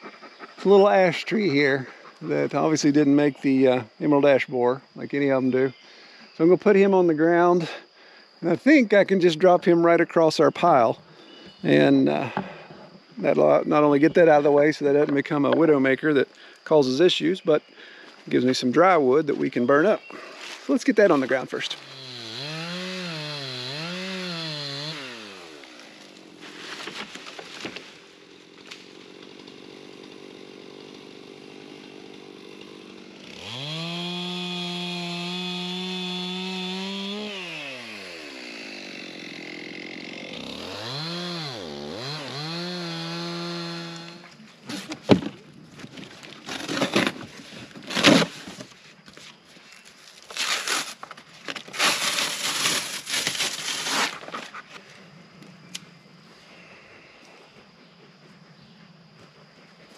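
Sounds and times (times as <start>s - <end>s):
chainsaw revving: 21.7s - 26.4s, 28.0s - 44.9s.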